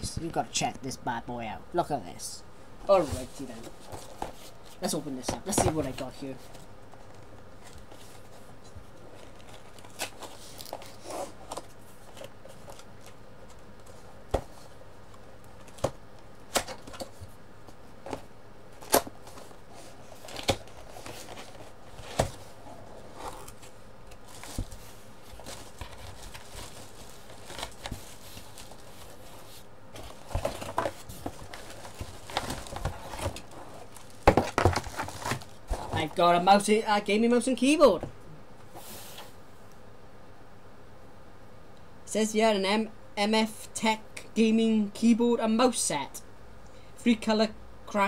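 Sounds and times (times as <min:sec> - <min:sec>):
cardboard rustling and scraping: 0:02.8 - 0:14.8, 0:16.6 - 0:36.5, 0:38.7 - 0:39.4.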